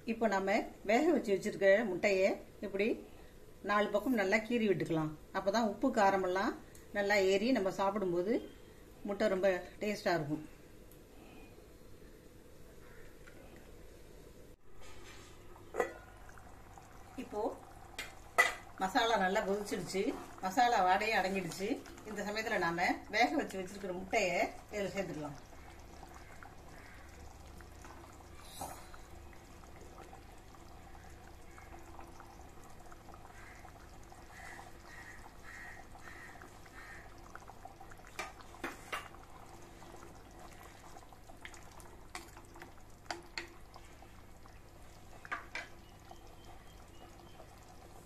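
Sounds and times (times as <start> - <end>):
gravy bubbling in a pot: 14.6 - 48.0.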